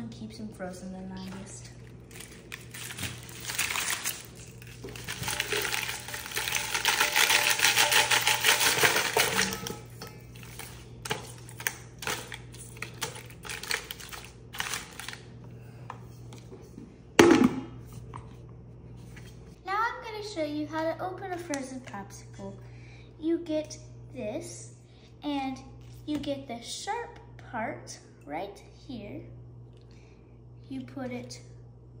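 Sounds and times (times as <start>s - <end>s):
plastic wrappers crinkling: 1.2s - 15.3s.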